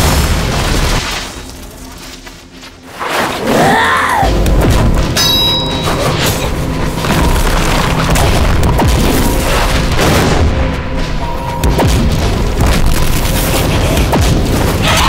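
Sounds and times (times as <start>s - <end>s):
heavy booming impacts and crashes: 0.0s - 1.5s, 6.4s - 15.0s
dramatic background music: 0.0s - 15.0s.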